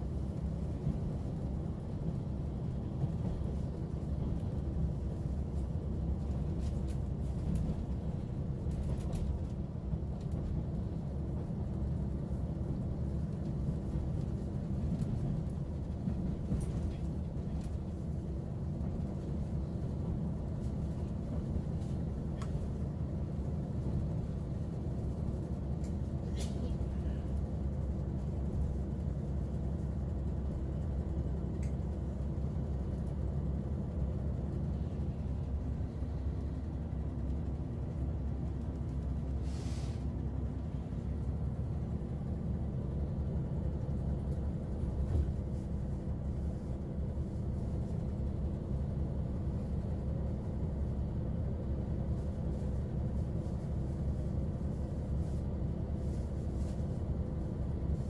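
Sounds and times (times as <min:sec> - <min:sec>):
vehicle rumble: 0:00.0 - 0:58.0
brief hiss: 0:39.4 - 0:40.1.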